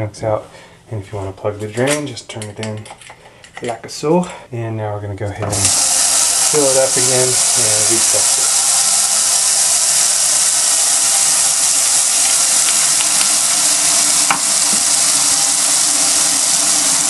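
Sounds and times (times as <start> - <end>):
faucet running into sink: 5.5 - 17.0.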